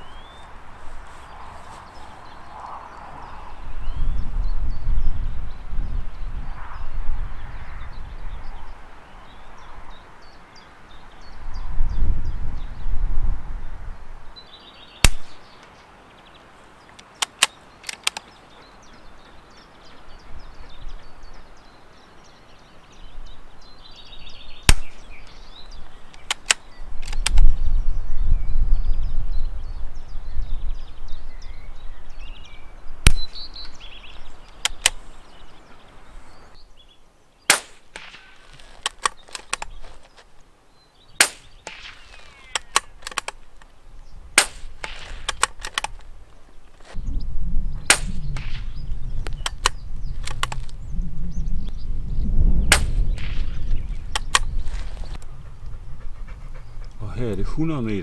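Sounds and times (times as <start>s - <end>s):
wind buffeting microphone: 0.0s - 15.6s, 18.1s - 36.9s, 41.2s - 58.0s
suppressed rifle shots: 15.0s - 15.4s, 24.7s - 25.0s, 33.0s - 33.4s, 37.5s - 39.8s, 41.2s - 43.4s, 44.4s - 46.0s, 47.8s - 48.8s, 52.6s - 55.1s
rifle bolt clicks: 16.9s - 18.3s, 26.1s - 27.5s, 34.5s - 35.0s, 37.5s - 39.9s, 41.2s - 43.7s, 44.4s - 46.1s, 49.3s - 50.8s, 54.1s - 55.2s.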